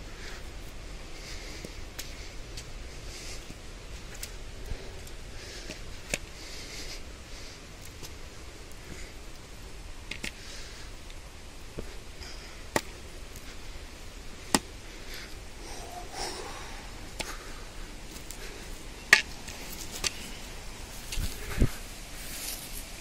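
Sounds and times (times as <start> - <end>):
soft breathing: 0.0 - 23.0.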